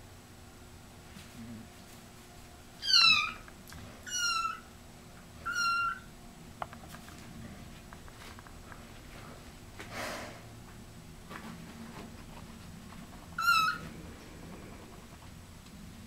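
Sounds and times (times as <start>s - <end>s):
kitten mewing: 2.8s - 3.4s, 4.0s - 4.6s, 5.4s - 6.0s.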